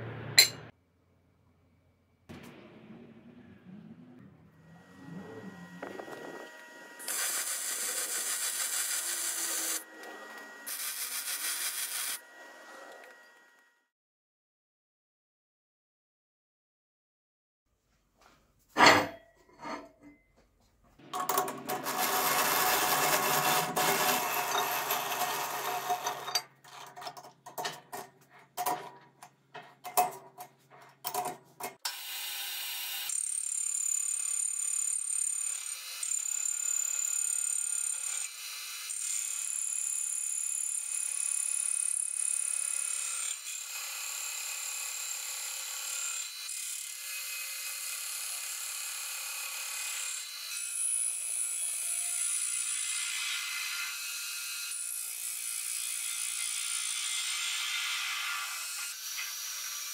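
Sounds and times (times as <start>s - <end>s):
sharp metal clank: 0.4s - 0.7s, 18.8s - 20.2s
power tool running: 4.2s - 13.7s, 21.1s - 26.4s, 31.8s - 46.4s
metal lathe whining: 4.4s - 13.5s, 21.3s - 26.4s.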